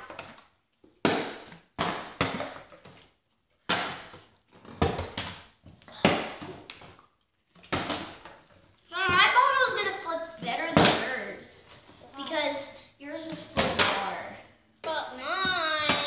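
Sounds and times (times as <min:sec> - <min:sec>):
plastic bottles thudding on wooden table: 0:01.0 - 0:02.9, 0:03.6 - 0:06.7, 0:07.6 - 0:08.4.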